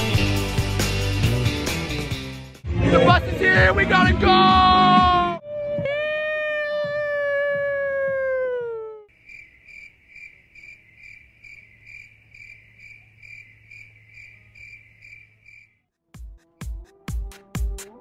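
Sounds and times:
person yelling: 2.8s - 9.1s
crickets chirping: 9.1s - 15.8s.

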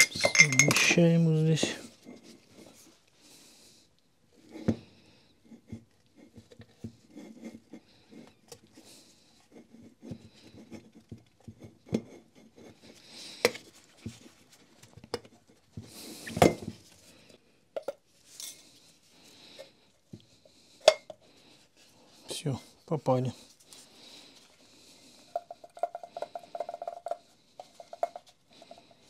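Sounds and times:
metal parts clicking and knocking: 0.0s - 1.0s.

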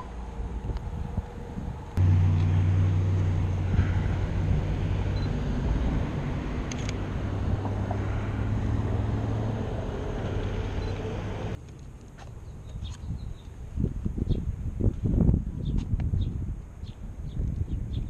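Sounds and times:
vehicle engine drone: 0.0s - 11.6s
cars passing hiss: 2.0s - 11.6s.

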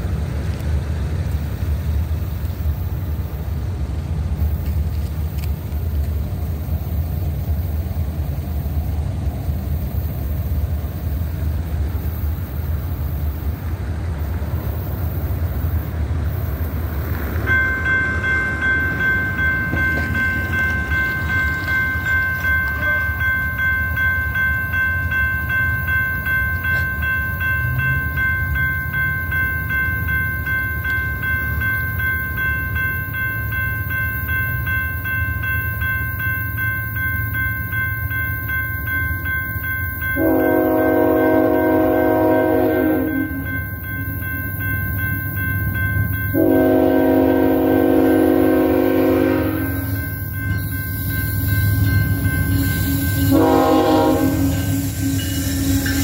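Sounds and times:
low train rumble: 0.0s - 56.0s
crossing signal ringing: 1.6s - 56.0s
locomotive horn blasts: 40.2s - 43.5s, 46.3s - 50.0s, 52.4s - 56.0s.

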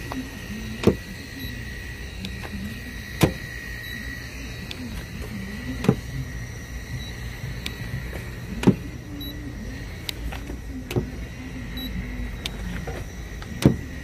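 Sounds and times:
low wavering hum: 0.0s - 14.0s.

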